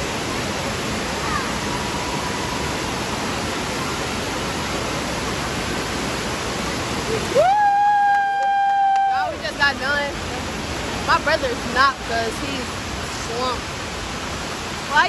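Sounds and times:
waterfall rushing into pool: 0.0 - 15.0.

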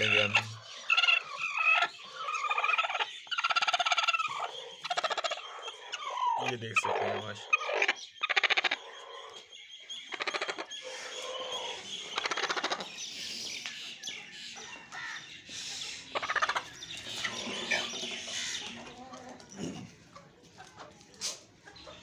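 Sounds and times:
rapid pulsed clucks: 0.0 - 11.2
light chirping calls: 0.0 - 20.2
chickens clucking: 0.0 - 22.0.

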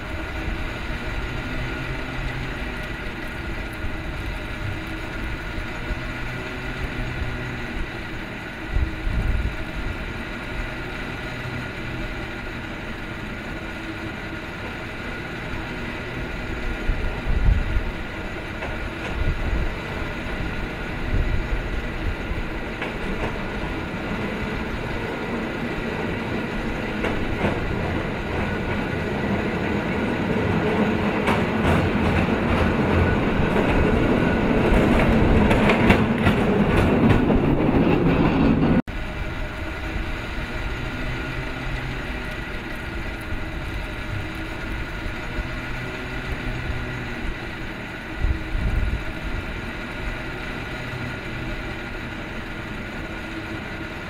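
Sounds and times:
cable car clunks: 0.0 - 38.8
cable car rumbling on rails: 0.0 - 54.0.

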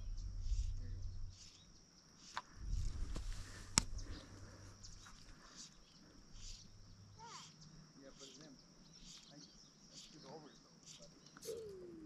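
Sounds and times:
faint bird chirps: 0.0 - 12.0
insects droning: 0.0 - 12.0
handling noise rumble: 2.5 - 5.0.

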